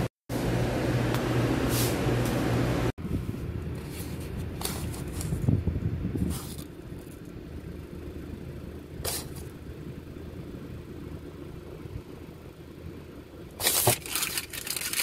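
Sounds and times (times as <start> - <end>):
steady hum: 0.0 - 14.8
low steady rumble: 0.0 - 15.0
paper receipts crackling: 13.6 - 15.0.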